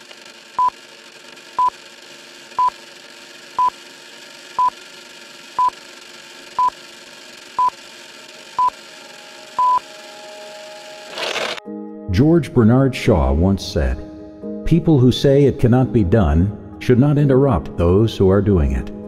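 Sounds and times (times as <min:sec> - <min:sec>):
short high beeps: 0:09.6 - 0:09.8.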